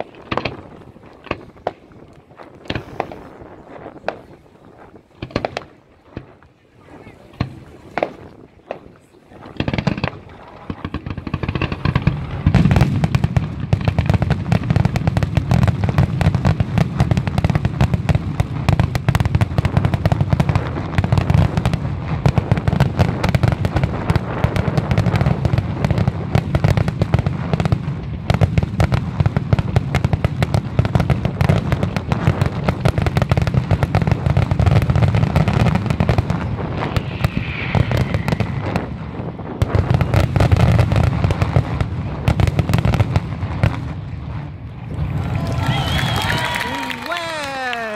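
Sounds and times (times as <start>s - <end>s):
fireworks bursting and crackling: 0.0s - 47.9s
deep rumble: 35.3s - 40.5s.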